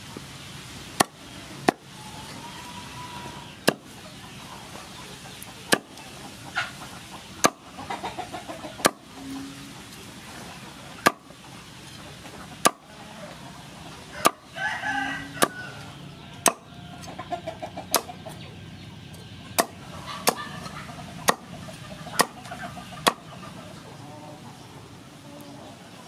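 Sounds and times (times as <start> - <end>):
knife chopping on wooden board: 5.7 - 5.9.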